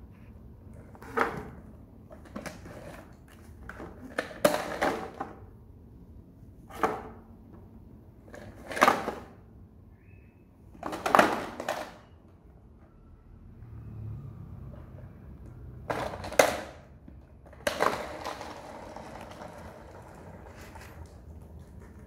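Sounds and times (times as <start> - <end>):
plastic toys scraping on tile floor: 0.9 - 5.2, 10.8 - 12.1, 15.9 - 22.0
plastic stool pushed on tile floor: 10.8 - 12.0, 15.9 - 16.8, 17.4 - 22.0.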